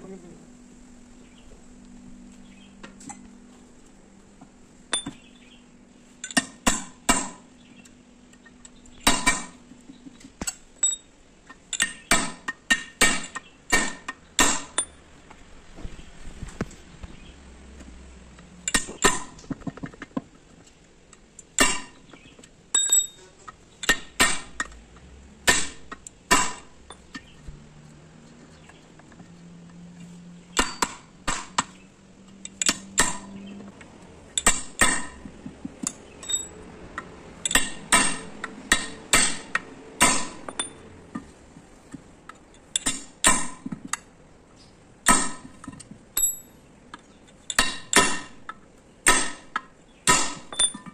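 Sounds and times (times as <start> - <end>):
hammer striking steel punch: 6.3 - 7.4, 9.0 - 9.6, 11.8 - 14.9, 21.6 - 22.0, 23.8 - 24.7, 25.4 - 27.3, 30.6 - 31.7, 32.6 - 33.5, 34.4 - 36.5, 37.5 - 40.8, 42.8 - 43.8, 45.0 - 45.6, 47.5 - 48.4, 49.0 - 50.9.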